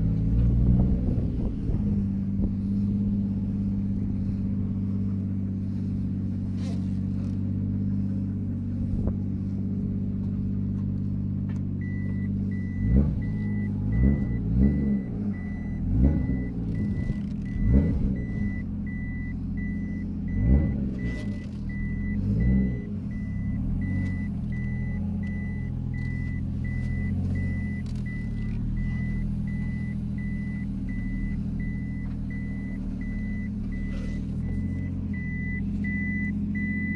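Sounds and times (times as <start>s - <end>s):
car engine idling and revving: 0.0s - 36.9s
high electronic beep: 11.8s - 36.9s.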